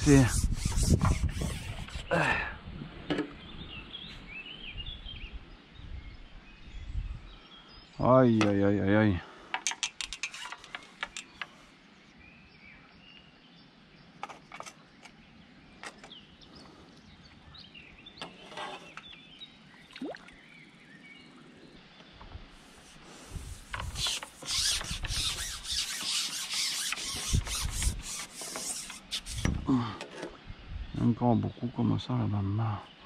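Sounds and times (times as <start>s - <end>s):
fishing pole scraping over grass: 0.0s - 2.1s, 10.0s - 11.4s, 18.2s - 19.2s, 22.5s - 30.3s.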